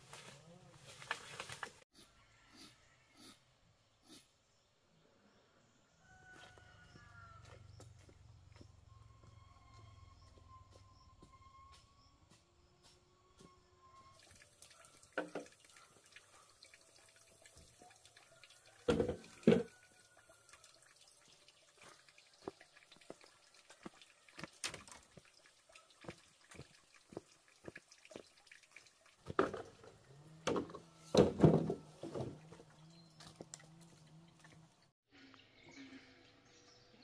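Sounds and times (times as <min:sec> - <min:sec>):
water dripping and splashing: 0:14.2 - 0:30.4, 0:31.8 - 0:34.9.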